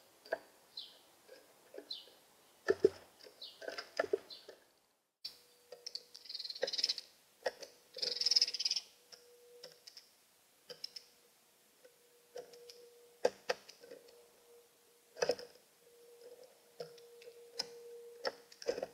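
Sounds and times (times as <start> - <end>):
faint steady hum: 4.2 - 18.9.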